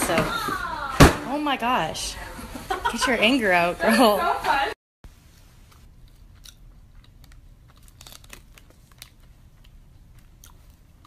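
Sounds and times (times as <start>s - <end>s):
snack wrapper crinkling: 5.3s - 11.0s.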